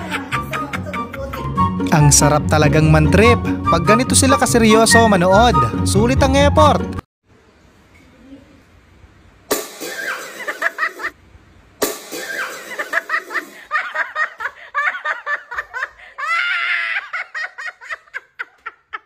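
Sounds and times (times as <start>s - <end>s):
high-pitched laugh: 0.0s - 1.5s, 10.0s - 11.2s, 12.2s - 19.0s
people laughing: 0.0s - 1.6s, 10.4s - 11.2s, 12.7s - 19.0s.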